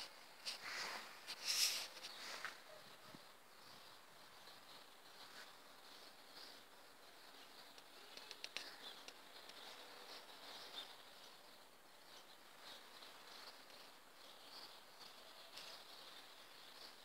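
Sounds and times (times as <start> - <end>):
faint background hiss: 0.0 - 17.0
soft clicks: 7.7 - 9.7.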